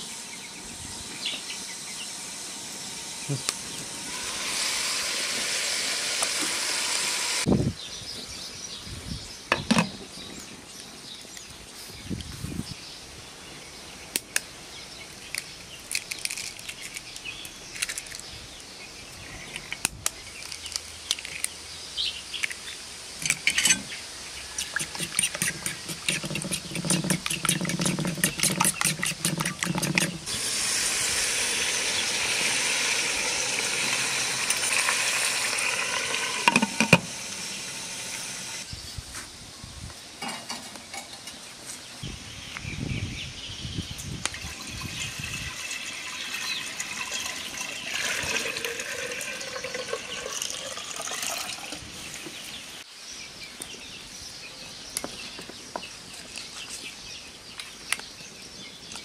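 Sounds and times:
water boiling in metal pot: 3.9 - 7.5, 24.5 - 38.6, 44.2 - 51.8.

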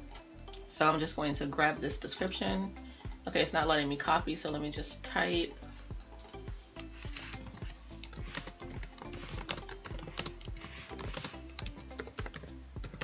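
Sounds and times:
background music: 0.0 - 13.0
computer keyboard typing: 6.0 - 13.0.

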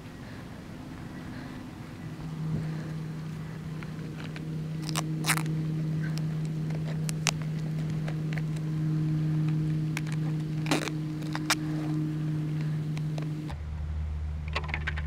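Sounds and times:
steady low hum: 0.0 - 15.0
tape being torn off: 3.8 - 8.7, 9.4 - 13.5.

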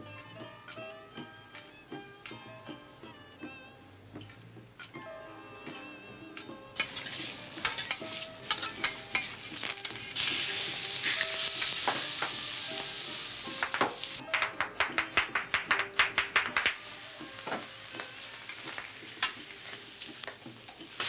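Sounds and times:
metal utensils scraping: 6.7 - 14.4
food sizzling on griddle: 6.7 - 21.0.

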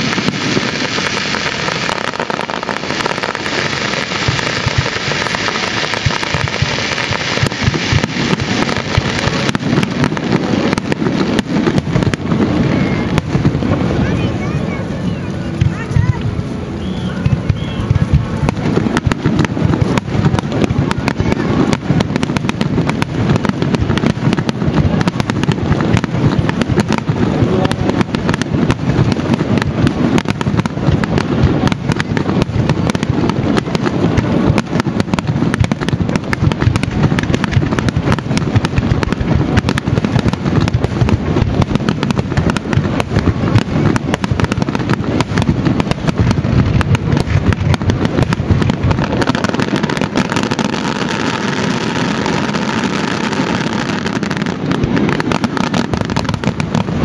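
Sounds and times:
firework shells bursting: 0.0 - 14.2
firework crackling: 0.0 - 57.0.

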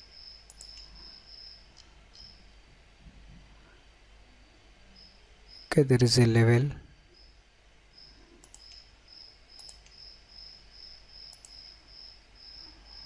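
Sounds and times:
computer mouse clicks: 0.4 - 1.1, 8.4 - 8.9, 9.6 - 10.0, 11.2 - 11.7.

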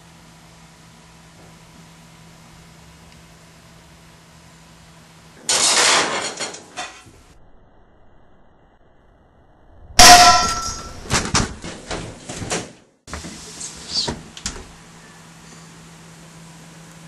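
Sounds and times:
metallic ringing: 10.0 - 11.1
loud gunshot: 10.0 - 11.2.

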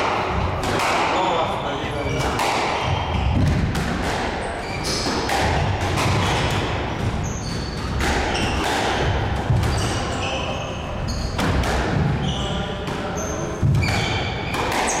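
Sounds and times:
squash ball cracking off rackets: 2.2 - 10.0, 13.6 - 15.0
shoes squeaking on hardwood: 4.5 - 5.2.

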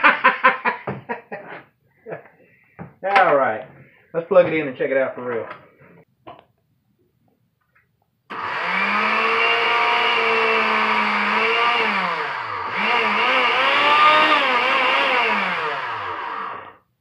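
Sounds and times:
blender motor running: 8.3 - 16.8.

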